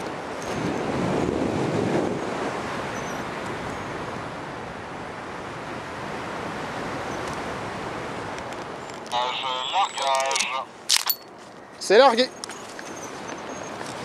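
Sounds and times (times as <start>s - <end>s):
wind roar over microphone: 0.0s - 9.1s.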